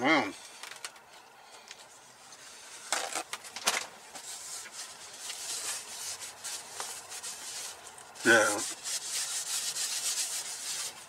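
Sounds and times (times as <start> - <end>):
paper towel rustling: 2.3 - 11.0.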